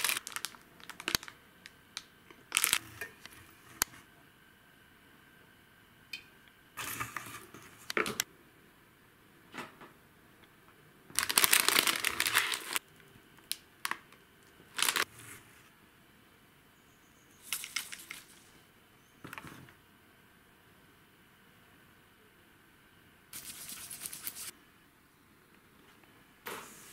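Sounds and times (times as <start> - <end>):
snack packaging crinkling: 0.0 - 3.4, 11.2 - 12.8, 14.7 - 15.1.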